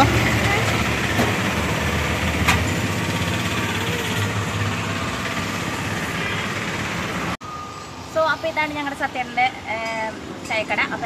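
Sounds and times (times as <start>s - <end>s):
vehicle engine idling: 0.0s - 7.4s
road traffic noise: 0.0s - 11.0s.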